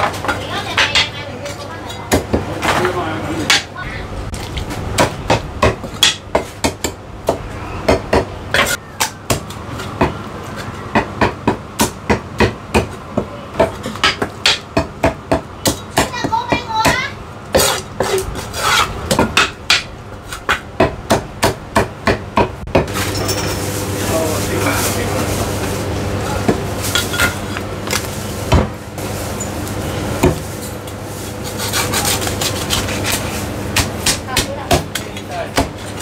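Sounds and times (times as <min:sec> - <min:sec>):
voices: 0:00.2 - 0:04.3, 0:16.0 - 0:17.2.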